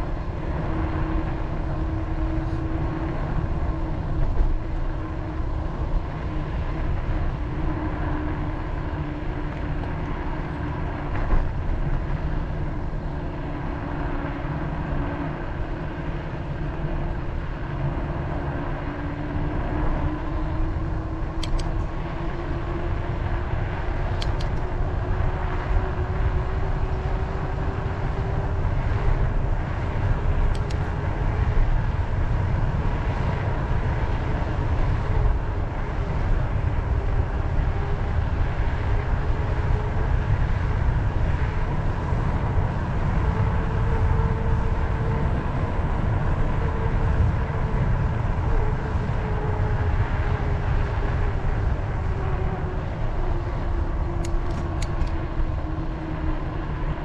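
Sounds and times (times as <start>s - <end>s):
wind rumbling on microphone: 0.0s - 57.0s.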